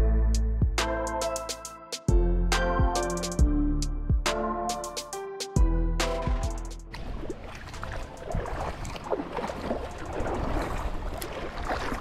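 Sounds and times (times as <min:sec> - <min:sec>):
background music with drum beat: 0:00.0 - 0:06.8.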